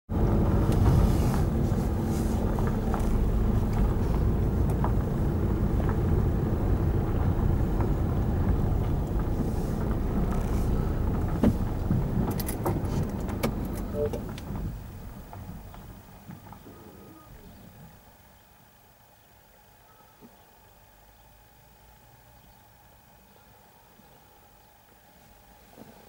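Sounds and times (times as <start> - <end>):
car engine and tyre rumble: 0.1 - 18.1.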